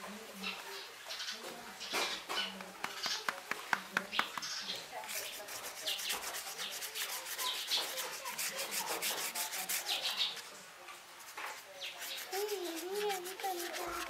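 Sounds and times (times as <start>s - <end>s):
paintbrush scrubbing on paper: 4.9s - 14.0s.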